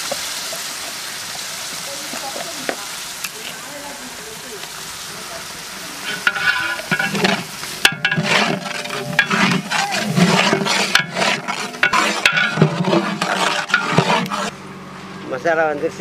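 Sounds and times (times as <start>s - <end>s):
paste frying and sizzling: 0.0s - 14.5s
metal ladle scraping pot: 6.0s - 14.5s.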